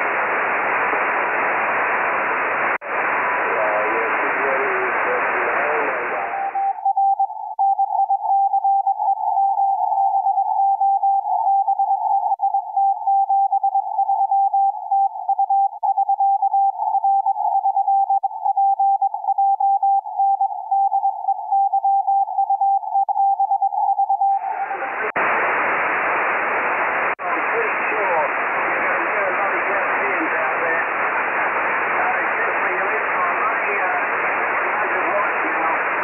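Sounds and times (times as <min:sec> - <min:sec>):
morse code tone: 0:06.3 - 0:24.5.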